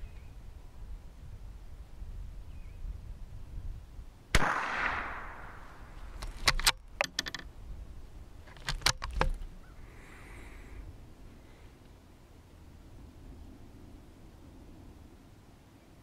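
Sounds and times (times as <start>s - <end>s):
rifle shot with echo: 4.3s - 6.0s
rifle bolt metallic clicks: 5.7s - 7.5s, 8.5s - 9.5s.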